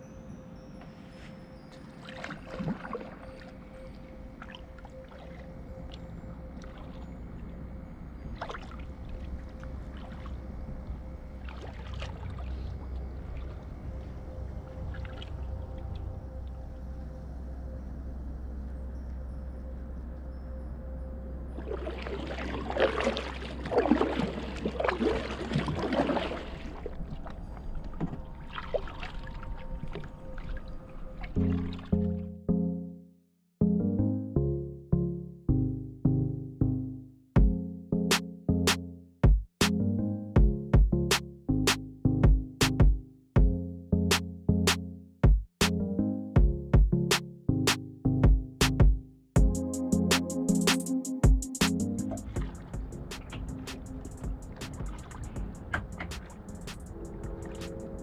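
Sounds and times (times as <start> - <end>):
water splashes and drips: 1.6 - 7.6, 8.3 - 16.6, 21.5 - 32.2, 51.7 - 58.0
paddle dipping through water: 1.7 - 6.0, 8.4 - 16.2, 21.6 - 32.2, 52.0 - 58.0
water dripping off paddle: 52.1 - 57.8.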